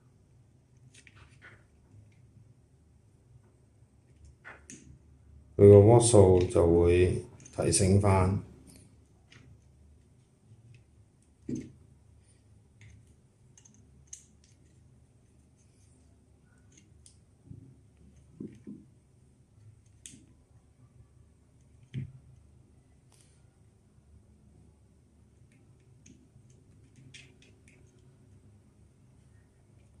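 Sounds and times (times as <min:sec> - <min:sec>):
wires clicking and rustling: 0:00.7 - 0:02.4, 0:06.0 - 0:20.7, 0:25.3 - 0:30.0.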